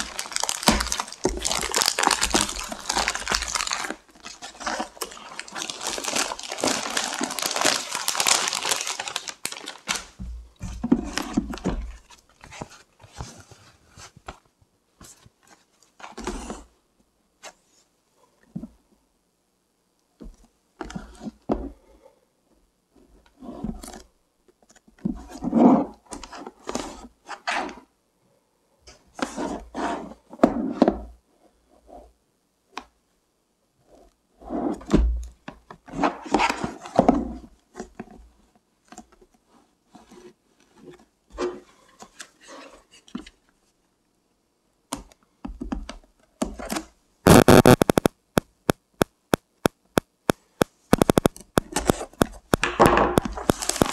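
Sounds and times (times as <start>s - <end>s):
plastic wrap crinkling: 0.0s - 10.2s, 51.0s - 53.9s
sharp clicks: 47.3s - 51.7s.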